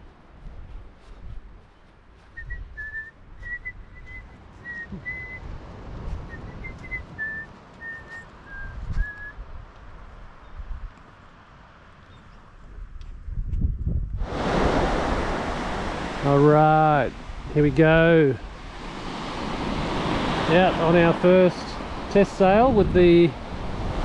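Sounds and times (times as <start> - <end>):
wind buffeting microphone: 0.0 - 11.0, 12.6 - 24.0
person whistling a tune: 2.3 - 5.4, 6.2 - 9.4.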